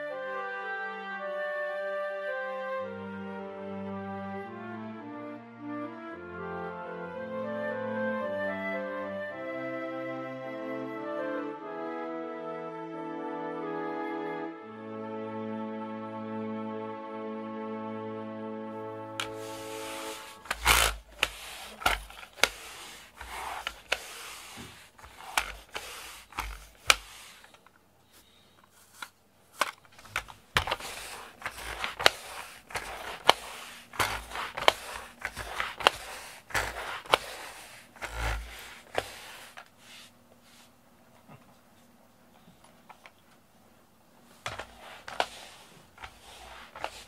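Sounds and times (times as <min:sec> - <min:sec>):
lint roller clicks: 0:19.2 - 0:27.8, 0:28.6 - 0:39.8, 0:44.4 - 0:47.0
lint roller swishing on mat: 0:19.2 - 0:40.8, 0:44.2 - 0:47.0.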